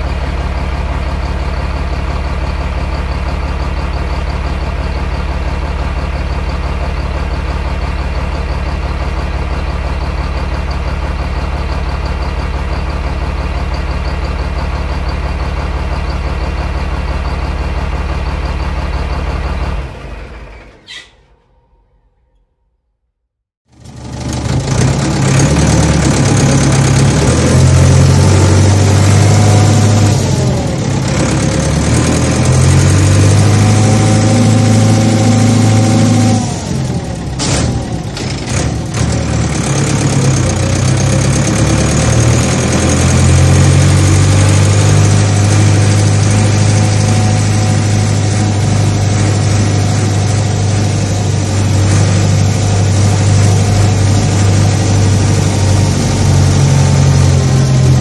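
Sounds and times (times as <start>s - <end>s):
diesel engine running under load: 0.0s - 22.1s, 23.7s - 58.0s.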